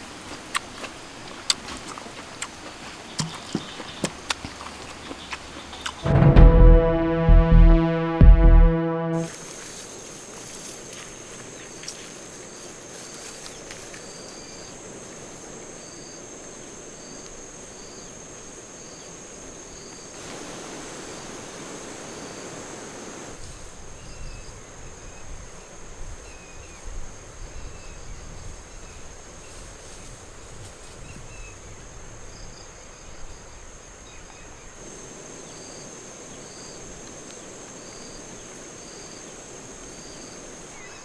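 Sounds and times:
low rumbling: 6.0s - 9.2s
rustles: 9.3s - 15.4s, 29.3s - 31.3s.

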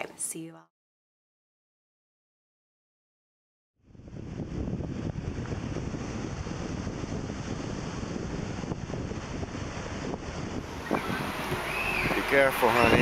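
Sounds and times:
wind buffeting microphone: 3.8s - 13.0s
waves breaking on beach: 5.3s - 13.0s.

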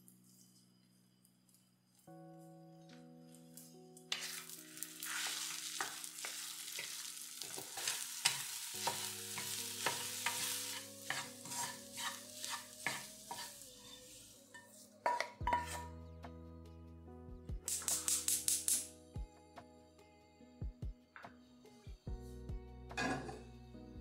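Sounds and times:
eggs sizzling in a pan: 4.1s - 15.9s
wooden spatula scraping pan: 4.1s - 15.9s
spatula tapping pan: 5.1s - 13.6s, 15.0s - 15.8s.

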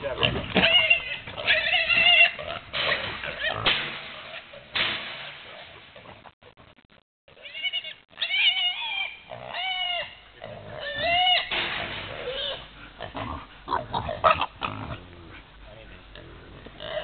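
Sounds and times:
piglets squealing: 0.1s - 3.7s, 7.3s - 11.5s, 12.1s - 14.9s.

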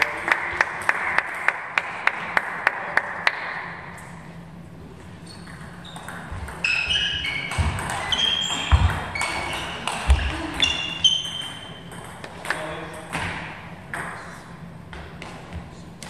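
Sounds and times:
table tennis ball bouncing: 1.2s - 3.7s, 5.4s - 14.2s
sneakers squeaking on floor: 5.0s - 12.0s.

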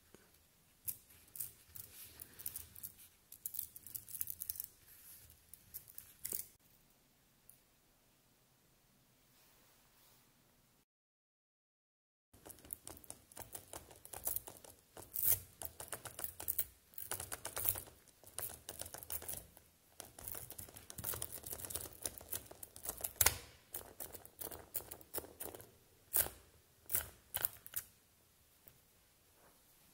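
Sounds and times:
magnet balls clicking and rattling: 0.8s - 6.6s, 12.4s - 27.9s.

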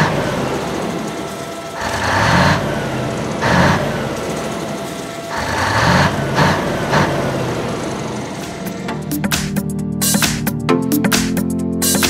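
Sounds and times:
heavy truck engine revving: 0.0s - 9.3s.

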